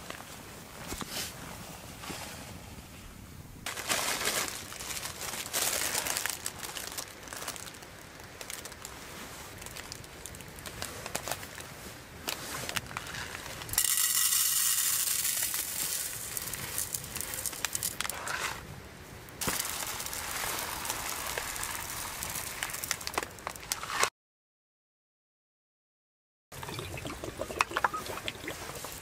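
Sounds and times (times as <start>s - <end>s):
plastic bag crinkling: 3.7s - 8.9s, 12.5s - 18.4s, 19.4s - 24.0s
rice grains pouring into metal tin: 13.8s - 17.9s, 19.4s - 23.2s.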